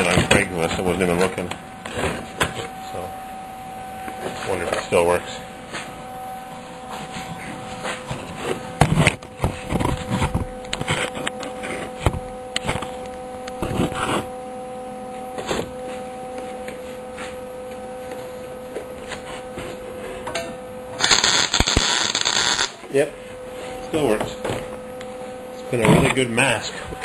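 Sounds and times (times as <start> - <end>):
electrical hum: 0.0 - 27.0
welder arc crackling: 21.0 - 22.8.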